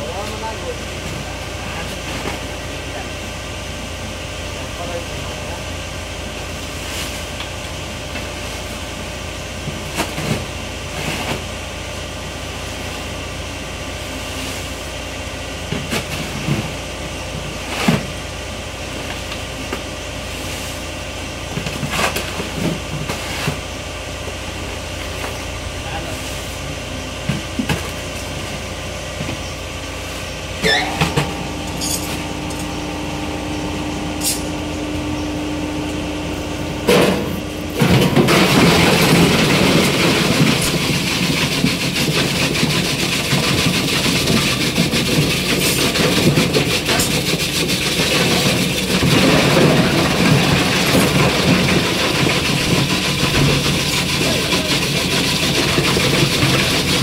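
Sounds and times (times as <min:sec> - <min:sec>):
ice crusher humming: 0:26.8 - 0:57.0
ice crunching in crusher: 0:30.8 - 0:57.0.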